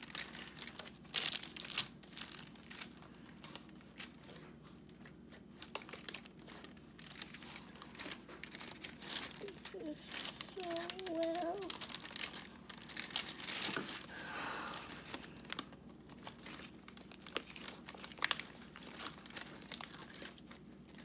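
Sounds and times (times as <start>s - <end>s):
dough squishing and tearing: 0.0s - 21.0s
paper crinkling: 0.0s - 21.0s.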